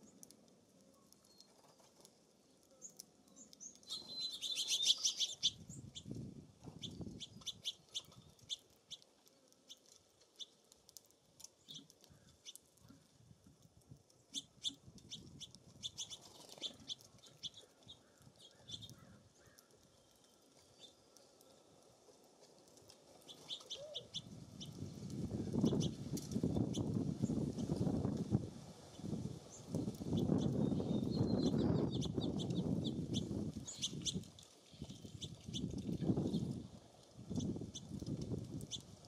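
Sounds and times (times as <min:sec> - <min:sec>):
small songbirds chirping: 0:00.0 - 0:13.1, 0:14.1 - 0:21.7, 0:23.2 - 0:28.1, 0:28.9 - 0:36.6, 0:37.3 - 0:39.0.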